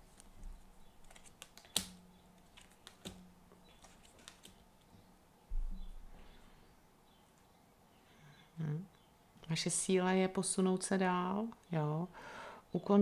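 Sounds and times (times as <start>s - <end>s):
cards clicking and tapping on table: 1.1s - 4.6s.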